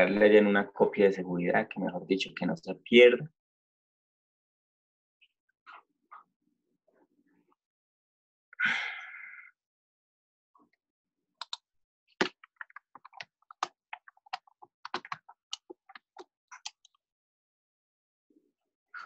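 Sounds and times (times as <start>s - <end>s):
computer keyboard clicking: 12.2s - 16.9s.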